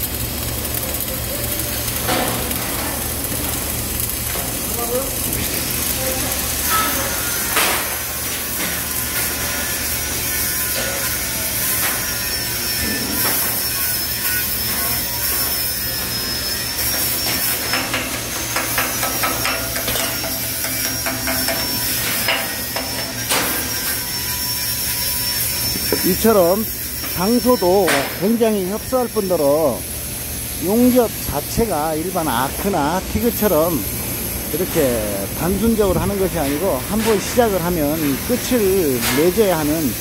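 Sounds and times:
welding arc crackling: 0:00.0 - 0:40.0
hand tool knocking and scraping: 0:17.3 - 0:23.7.

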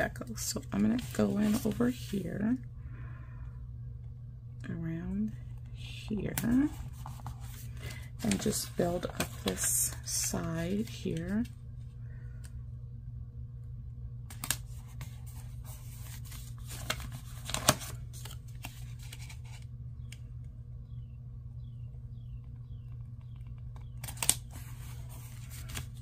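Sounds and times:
steady low hum: 0:00.0 - 0:26.0
paper rustling and tearing: 0:14.3 - 0:19.6, 0:24.0 - 0:26.0.

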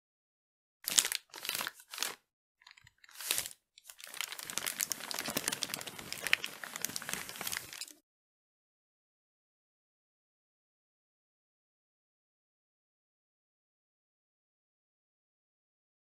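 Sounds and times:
paper crinkling: 0:00.9 - 0:08.0.

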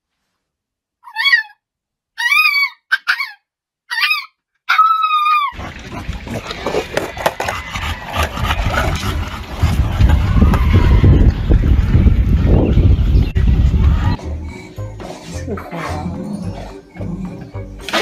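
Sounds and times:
dog whining: 0:02.2 - 0:09.1
skateboard wheels rolling on asphalt: 0:06.2 - 0:13.1.

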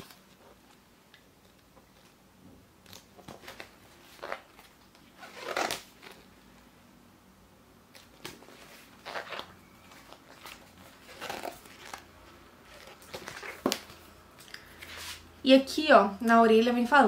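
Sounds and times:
book pages turning: 0:02.8 - 0:06.7, 0:07.9 - 0:15.3.

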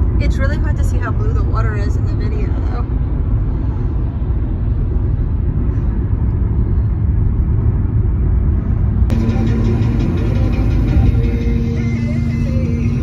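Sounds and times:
car cabin road and engine rumble: 0:00.0 - 0:13.0
music with steady tone: 0:09.1 - 0:13.0.

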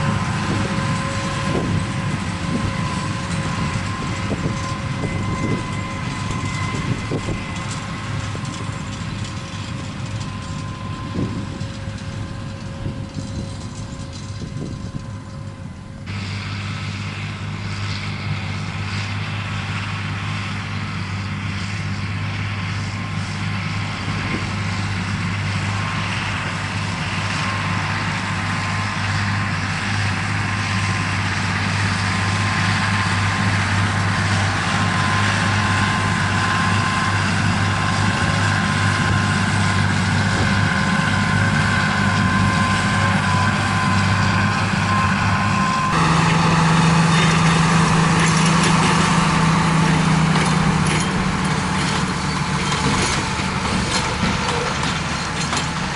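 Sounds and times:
tractor diesel engine running: 0:00.0 - 0:55.9
thin steady whine: 0:30.2 - 0:52.6.

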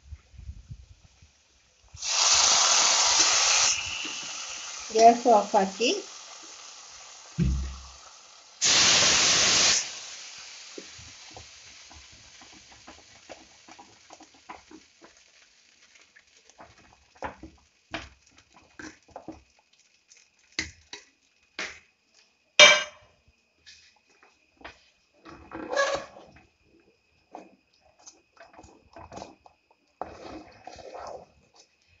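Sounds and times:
hot ghee sizzling: 0:00.0 - 0:32.0
ladle stirring thick rice: 0:27.3 - 0:31.9.

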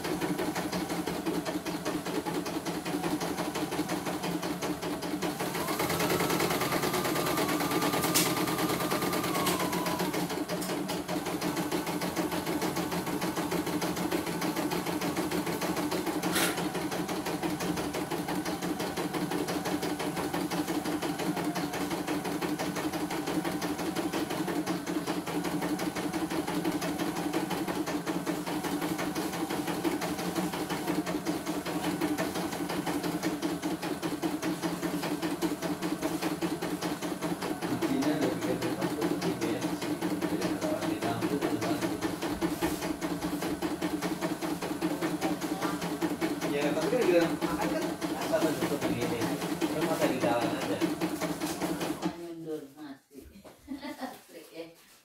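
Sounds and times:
embroidery machine needle clatter: 0:00.0 - 0:52.1
high machine whine: 0:05.5 - 0:10.7.

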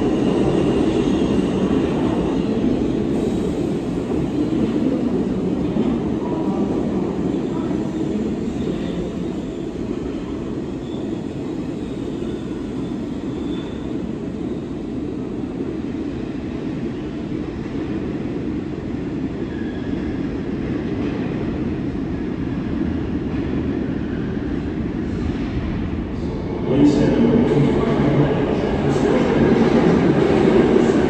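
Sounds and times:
subway train rumbling: 0:00.0 - 0:31.0
train wheels squealing: 0:08.6 - 0:14.8, 0:19.4 - 0:20.2.

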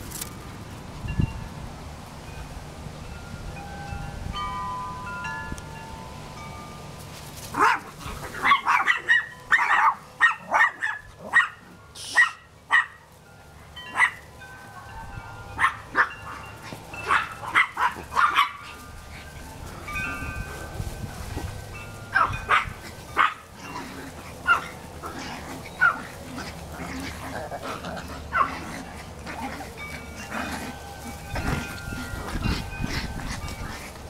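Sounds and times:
wind chimes tinkling: 0:00.8 - 0:08.1, 0:09.0 - 0:10.2, 0:11.7 - 0:34.0
puppies yapping: 0:07.5 - 0:13.0, 0:13.8 - 0:34.0.

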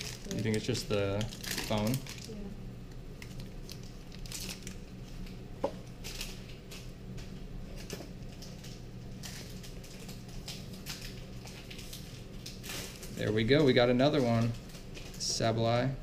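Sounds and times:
foil wrapper crinkling: 0:00.0 - 0:02.4, 0:03.1 - 0:15.3
steady low hum: 0:00.0 - 0:16.0.

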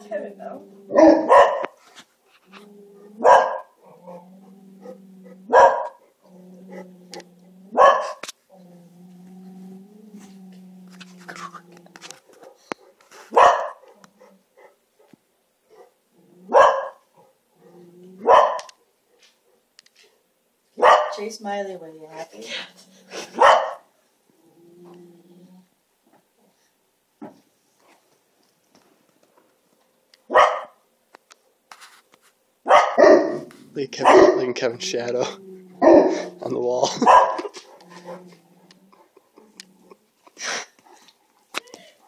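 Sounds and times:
dog growling low: 0:00.3 - 0:01.3, 0:02.4 - 0:12.7, 0:16.1 - 0:16.6, 0:17.5 - 0:18.3, 0:22.5 - 0:23.4, 0:24.3 - 0:25.7, 0:34.8 - 0:40.1
dogs barking: 0:00.9 - 0:01.8, 0:03.2 - 0:04.2, 0:04.8 - 0:06.8, 0:07.8 - 0:08.2, 0:12.3 - 0:17.4, 0:18.2 - 0:19.7, 0:20.8 - 0:21.2, 0:23.3 - 0:23.9, 0:30.3 - 0:30.8, 0:32.6 - 0:34.5, 0:35.8 - 0:38.3.

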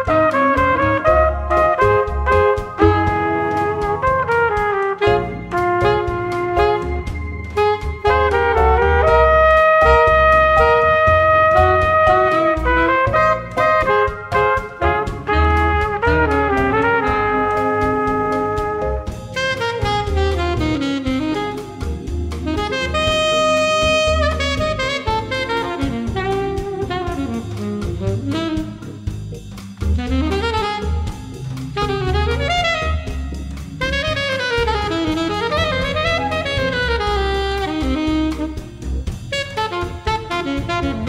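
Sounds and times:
instrumental jazz music: 0:00.0 - 0:41.0.

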